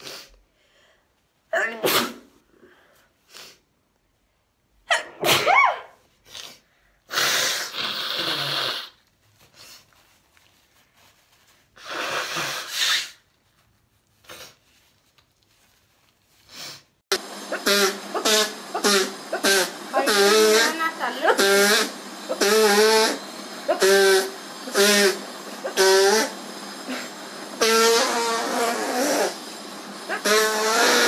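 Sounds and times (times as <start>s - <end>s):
woman blowing nose into tissue: 0.0s - 0.4s, 3.2s - 3.7s, 5.1s - 14.9s, 16.3s - 31.0s
woman sneezing: 1.5s - 2.3s, 4.9s - 6.0s.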